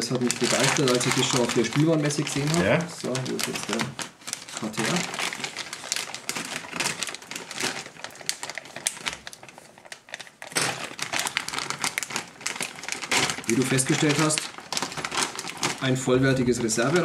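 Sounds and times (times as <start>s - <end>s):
plastic packaging crinkling: 0.0s - 17.0s.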